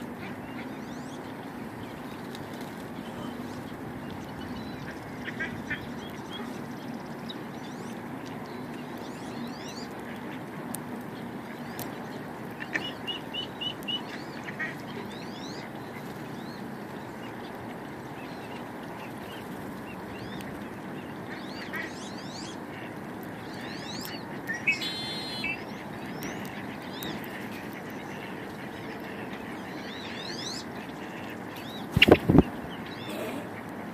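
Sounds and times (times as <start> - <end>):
small birds chirping: 0.0 - 33.9
duck quacking: 4.9 - 6.5, 21.0 - 23.0.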